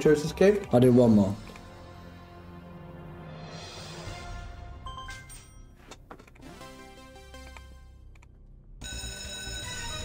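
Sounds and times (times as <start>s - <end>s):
slot game music: 4.4s - 5.8s, 6.4s - 8.1s, 8.8s - 10.0s.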